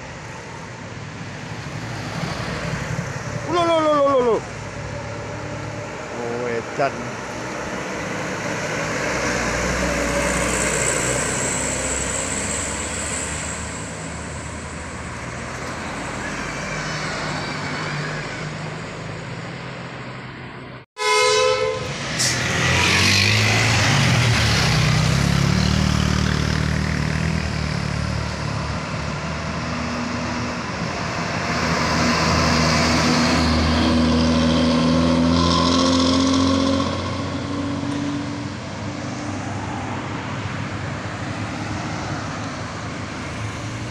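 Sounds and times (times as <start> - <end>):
heavy diesel trucks passing: 0.0 - 43.9
loud truck horn: 21.0 - 22.6.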